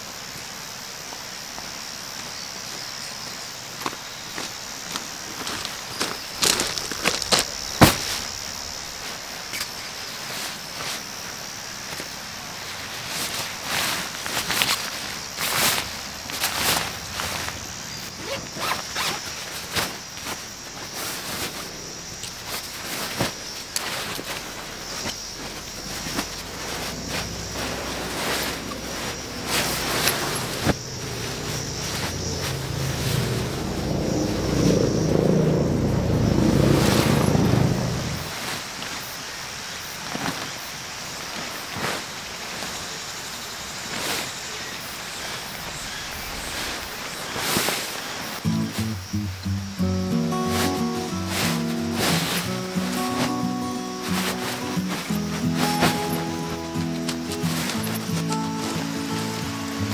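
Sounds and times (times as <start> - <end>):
steady outdoor hiss: 0.0 - 59.9
sharp crackles: 4.9 - 11.0, 12.7 - 39.0, 43.8 - 59.9
nylon fabric rustling: 12.7 - 39.0, 49.9 - 59.9
zipper opening: 18.2 - 19.3, 26.2 - 38.4.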